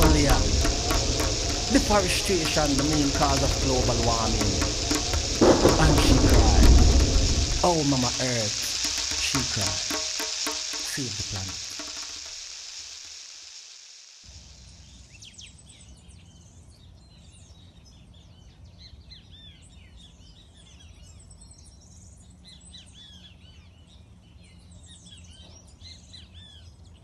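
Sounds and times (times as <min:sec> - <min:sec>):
low steady rumble: 0:00.0 - 0:09.9
hiss: 0:00.0 - 0:15.3.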